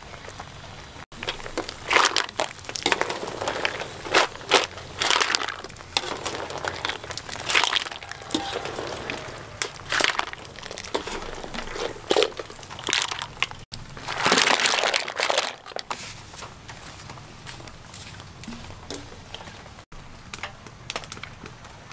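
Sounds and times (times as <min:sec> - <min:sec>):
mussel shells clattering in metal strainer: 0:01.3 - 0:15.8.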